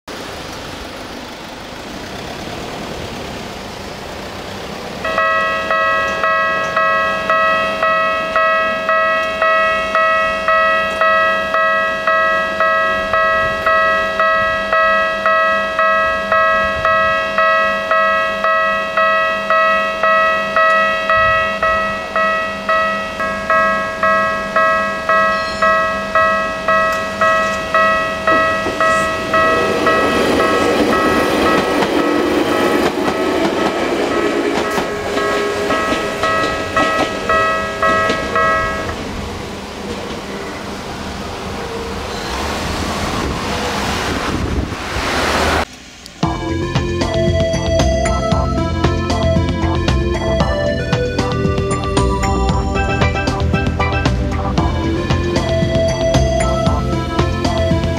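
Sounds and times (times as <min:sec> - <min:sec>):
train rumbling: 0:00.1 - 0:57.9
level crossing bell ringing: 0:05.0 - 0:39.0, 0:46.2 - 0:57.9.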